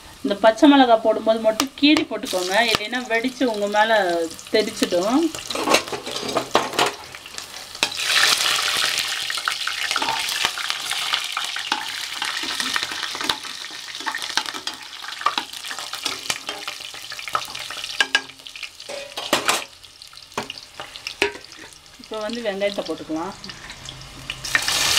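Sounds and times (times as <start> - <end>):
spices sizzling in hot oil: 0.0 - 24.9
spoon scraping pan: 5.3 - 8.9, 9.7 - 19.8, 20.4 - 21.8.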